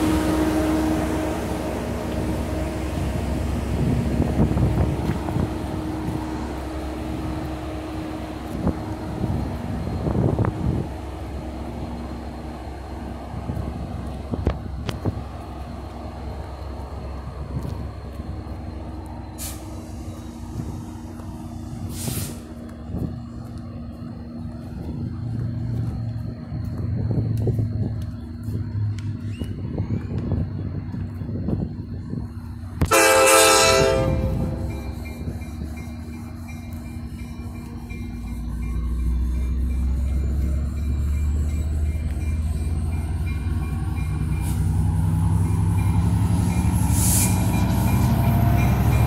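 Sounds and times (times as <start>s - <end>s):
diesel locomotive rumbling: 0.0s - 49.0s
brake air hisses: 19.4s - 22.6s, 46.8s - 47.8s
train wheels clattering on rails: 32.8s - 49.0s.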